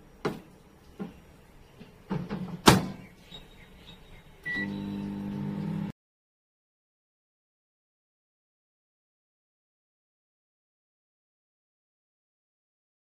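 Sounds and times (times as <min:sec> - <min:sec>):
keypad beep: 0:04.5 - 0:05.0
microwave humming: 0:04.5 - 0:05.9.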